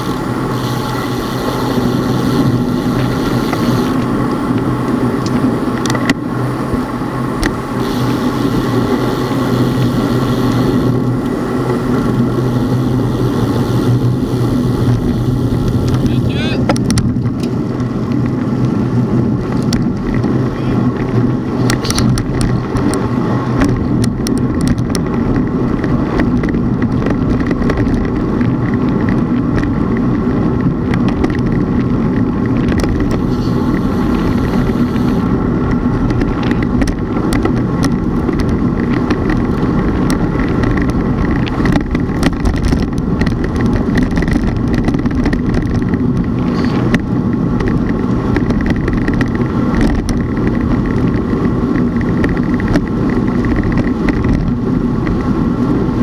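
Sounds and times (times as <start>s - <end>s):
road and wind rumble: 0.0s - 56.0s
small clicks and rattles: 14.9s - 55.7s.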